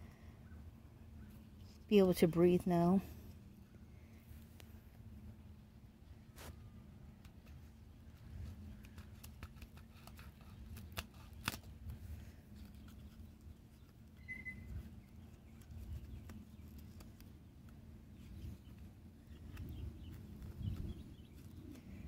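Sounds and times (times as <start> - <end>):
hand pruners snipping: 8.7 - 12.0
high chirp: 14.2 - 14.7.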